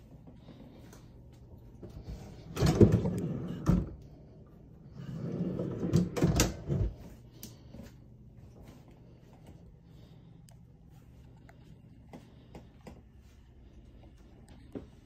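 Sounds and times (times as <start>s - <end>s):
pantry rack rolling on drawer slides: 2.2s - 4.0s, 4.9s - 7.0s.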